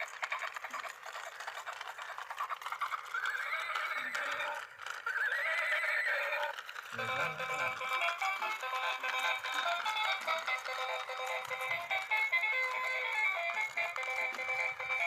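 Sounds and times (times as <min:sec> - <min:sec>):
clip-clop hoof sounds: 0:00.0 - 0:15.0
toy horse whinny: 0:00.0 - 0:15.0.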